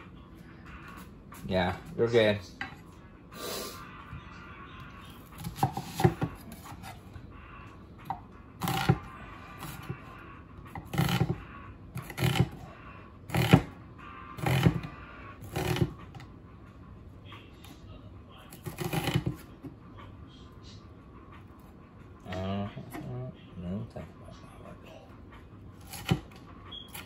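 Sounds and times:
knife chopping onion on wooden board: 5.3 - 7.0, 8.1 - 10.0, 10.7 - 11.4, 12.0 - 12.6, 13.3 - 13.8, 14.4 - 16.0, 18.6 - 19.5, 25.8 - 27.0.

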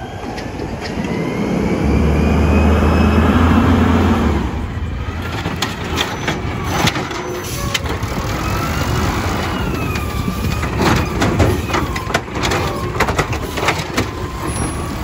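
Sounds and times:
hydraulic whine: 0.0 - 15.0
trash cart clanking and knocking: 4.8 - 15.0.

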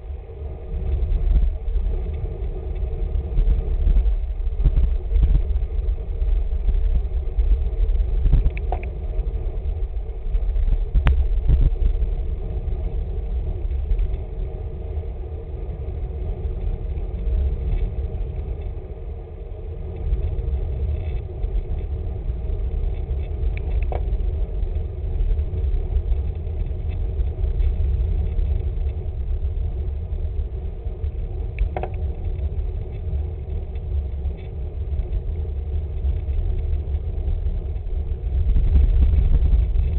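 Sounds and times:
wind rushing over microphone: 0.0 - 39.9
faint clicks: 7.8 - 9.3.

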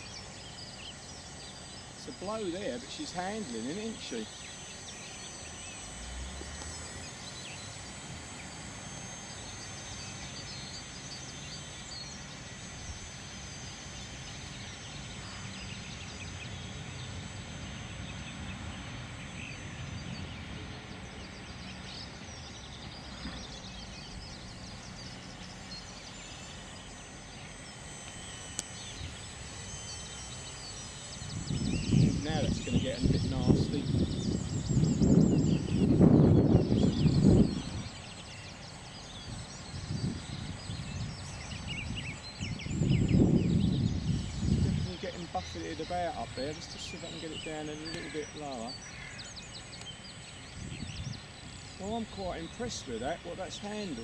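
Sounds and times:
model helicopter whine: 0.0 - 54.0
wind rumbling on microphone: 31.2 - 38.1, 39.2 - 45.6, 50.5 - 51.6.

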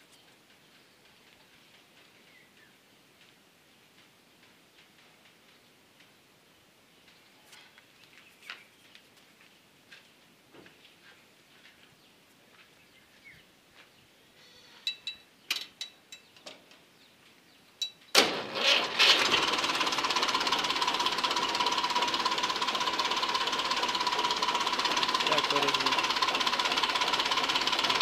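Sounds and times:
diesel tractor engine starting: 18.2 - 28.0.

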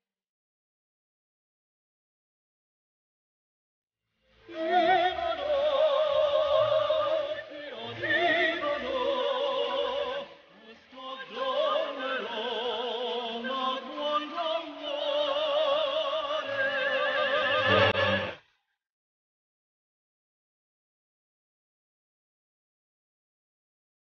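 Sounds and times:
operatic voice singing: 4.5 - 18.4.

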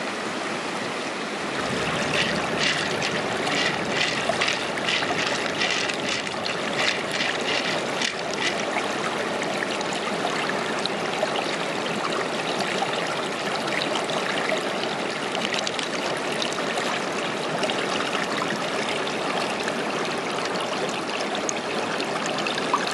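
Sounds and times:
running water: 0.0 - 22.9
pearls clicking together: 2.2 - 8.6.

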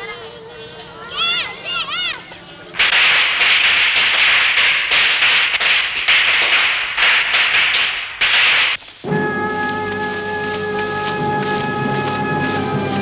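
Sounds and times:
firecrackers popping: 2.8 - 9.1.

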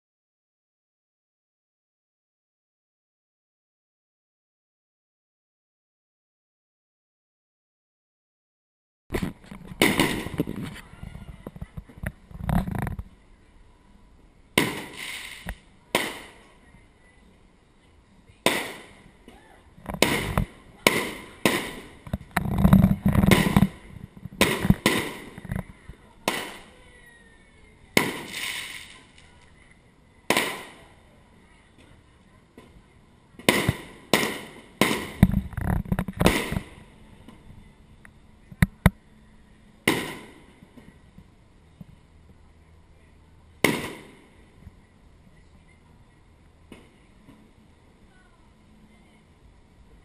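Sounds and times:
firework shells bursting: 9.1 - 10.8, 14.6 - 16.5, 19.9 - 23.8, 24.4 - 25.5, 28.0 - 29.4, 33.4 - 36.8.

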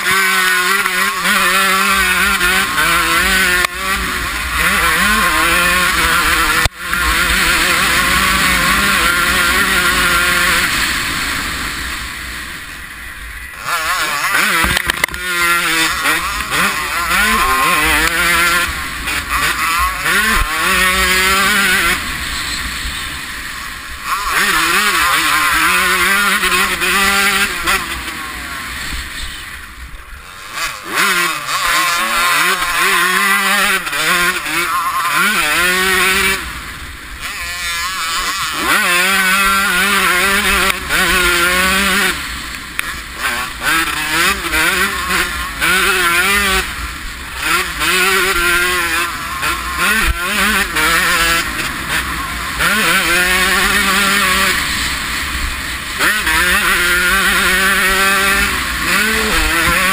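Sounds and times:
motocross engine revving: 0.0 - 59.9.

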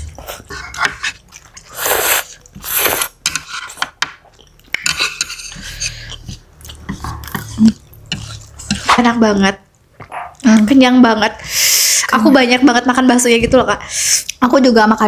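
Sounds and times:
noodles slurped: 0.0 - 3.2
wet chewing: 4.3 - 8.9.

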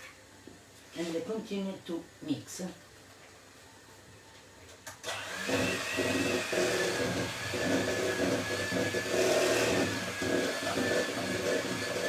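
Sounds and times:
electric mixer motor whine: 5.0 - 12.0
beaters churning in bowl: 5.4 - 12.0.

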